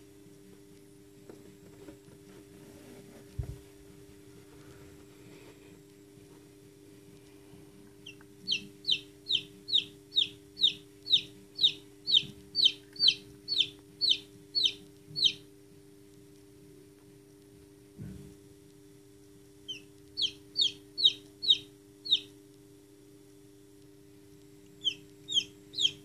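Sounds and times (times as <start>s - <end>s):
faint low hum: 0.0s - 26.0s
chick peeping: 8.0s - 15.5s, 19.7s - 22.4s, 24.8s - 26.0s.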